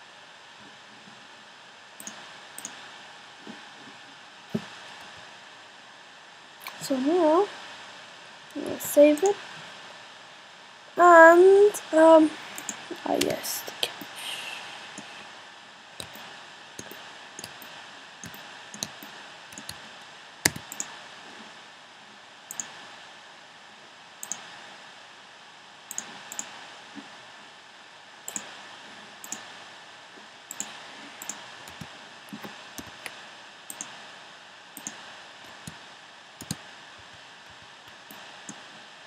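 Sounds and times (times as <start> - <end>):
steady hiss: 4.3 - 21.8
mouse and keyboard clicks: 16.8 - 19.8, 20.5 - 20.9.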